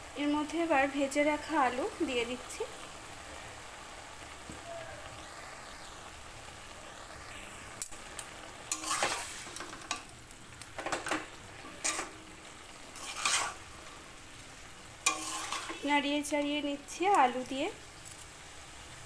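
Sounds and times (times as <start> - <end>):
faint steady sizzle: 0.0 - 19.0
metal spatula scraping wok: 8.7 - 10.1, 10.8 - 14.0, 15.0 - 16.3.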